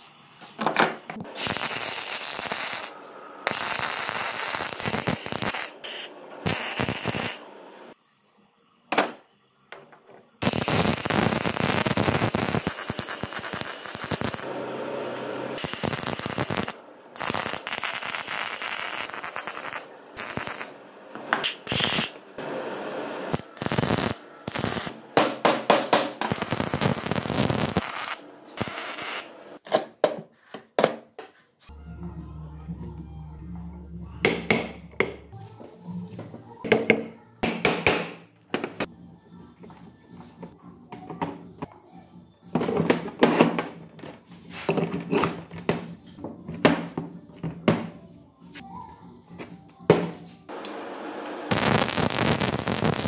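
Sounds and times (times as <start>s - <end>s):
welding arc crackling: 1.2s - 7.5s, 10.4s - 14.5s, 15.4s - 20.8s, 21.4s - 25.0s, 26.2s - 29.4s, 51.5s - 53.0s
background music: 31.7s - 37.4s.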